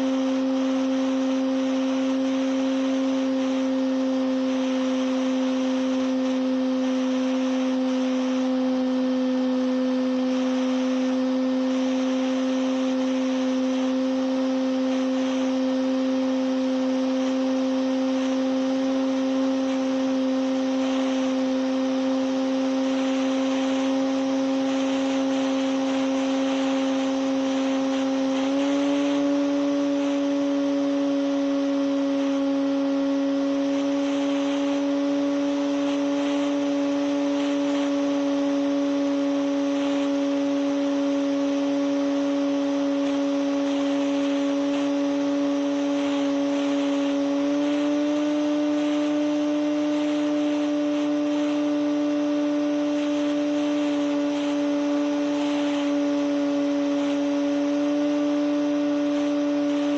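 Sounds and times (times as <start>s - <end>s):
model plane motor whining: 0.0s - 59.9s
steady hiss: 52.6s - 59.9s.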